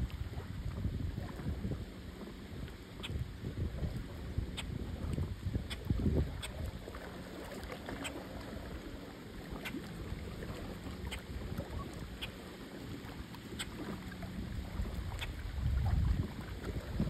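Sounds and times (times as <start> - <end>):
wind on microphone: 0.0 - 8.9, 9.5 - 12.4, 13.0 - 17.0
small waves lapping on rocks: 5.1 - 17.0.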